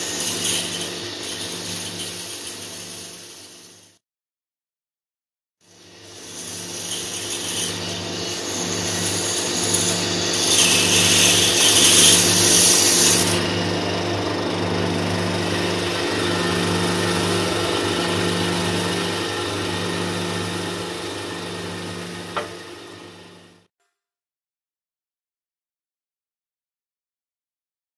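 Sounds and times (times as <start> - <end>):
bandsaw motor hum: 0.0 - 4.0, 5.7 - 23.7
saw blade cutting wood: 0.0 - 4.0, 5.7 - 14.0, 15.1 - 23.0.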